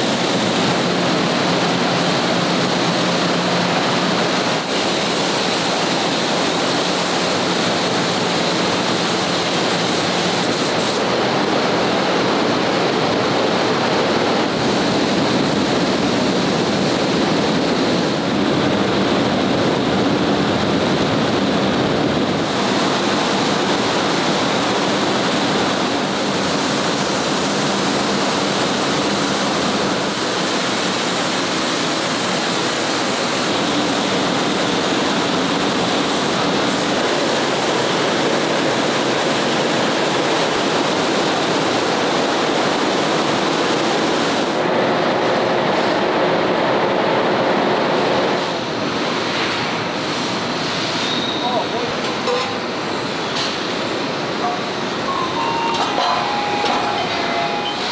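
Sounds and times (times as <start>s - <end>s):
spray booth rushing noise: 0.0s - 44.6s, 48.4s - 57.9s
spray guns hissing: 4.5s - 11.1s, 26.0s - 38.0s.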